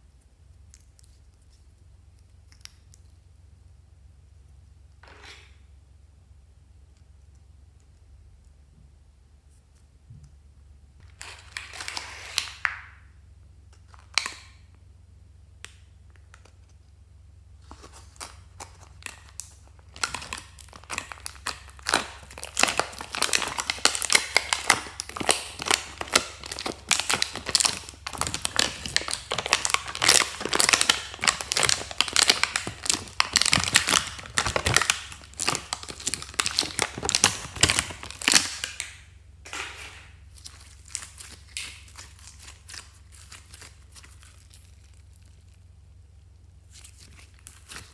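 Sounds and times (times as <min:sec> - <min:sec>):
slime crackling and popping: 0:17.6 - 0:45.7, 0:46.6 - 0:47.9.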